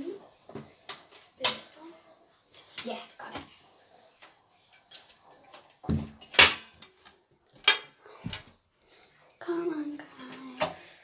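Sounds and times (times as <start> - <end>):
hard objects knocking and clattering: 4.9 - 8.6.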